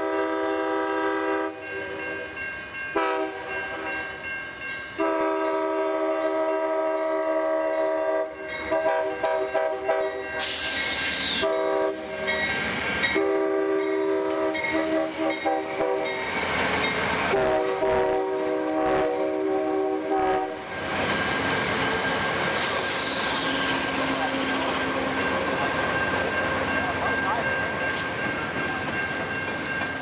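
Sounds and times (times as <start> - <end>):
locomotive air horn blasts: 0.0 - 1.6, 3.0 - 3.9, 5.0 - 10.6, 11.2 - 12.2, 13.1 - 16.2, 17.3 - 20.6.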